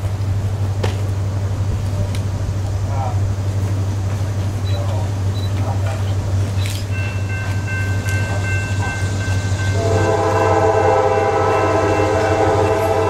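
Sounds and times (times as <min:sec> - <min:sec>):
steady low rumble: 0:00.0 - 0:13.0
locomotive air horn chord: 0:09.6 - 0:13.0.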